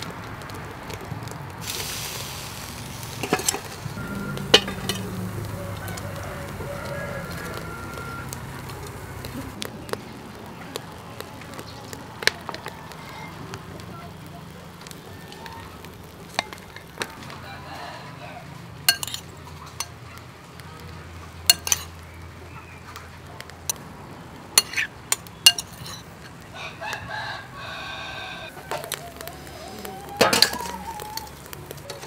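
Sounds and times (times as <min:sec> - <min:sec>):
charcoal grill crackling: 0:00.0 - 0:32.0
rooster crowing: 0:03.4 - 0:09.6, 0:14.9 - 0:15.9, 0:17.0 - 0:18.8, 0:26.5 - 0:32.0.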